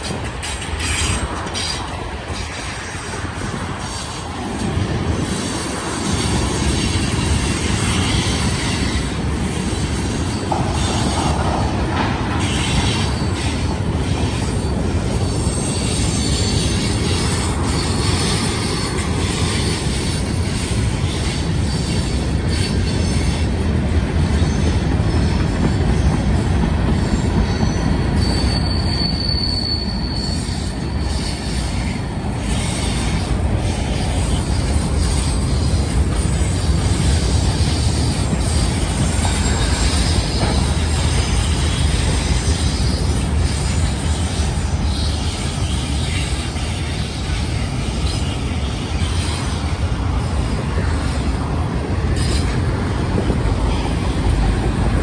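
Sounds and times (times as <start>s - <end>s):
high wheel squeals: 0.0s - 4.4s, 5.1s - 55.0s
train wheels rumbling on rails: 0.0s - 55.0s.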